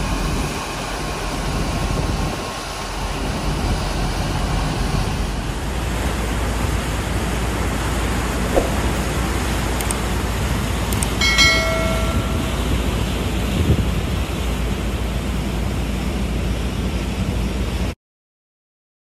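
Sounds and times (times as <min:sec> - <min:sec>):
propeller wake churning: 0:00.0 - 0:17.9
wind on microphone: 0:08.5 - 0:09.8
short ringing tone: 0:11.2 - 0:13.3.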